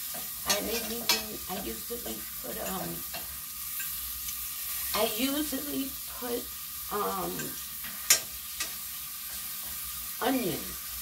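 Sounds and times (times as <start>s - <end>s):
mushrooms sizzling in a pan: 0.0s - 11.0s.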